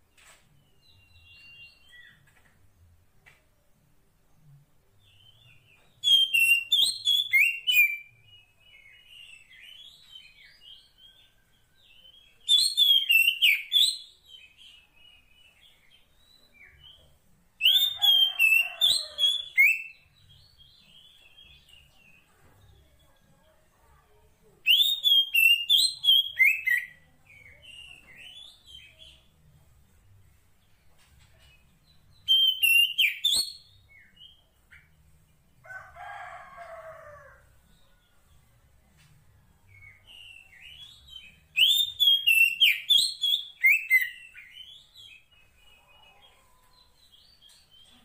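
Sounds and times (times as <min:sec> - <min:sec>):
bird singing loud phrases: 0:05.0 - 0:11.4, 0:12.0 - 0:17.0, 0:24.6 - 0:29.4, 0:31.9 - 0:35.0, 0:39.7 - 0:48.0.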